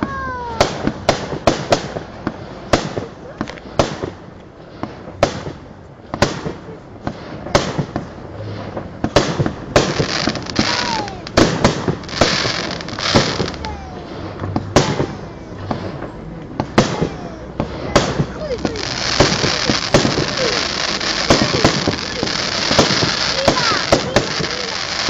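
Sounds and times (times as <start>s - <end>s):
firework crackling: 0.0s - 25.0s
firework shells bursting: 8.7s - 13.8s, 14.4s - 25.0s.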